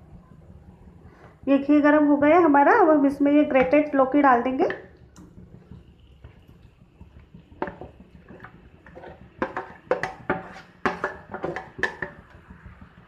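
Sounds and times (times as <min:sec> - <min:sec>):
gourd scraped into hot ghee: 0:07.6 - 0:12.2
spoon and bowl knocking on pan: 0:07.6 - 0:12.6.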